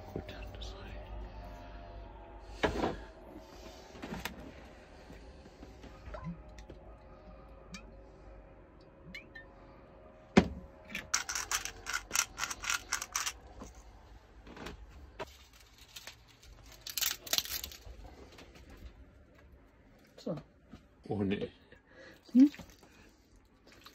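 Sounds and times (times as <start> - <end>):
scattered clicks: 11.0 - 13.4
pepper grinder crunching: 11.0 - 13.8, 15.8 - 17.9.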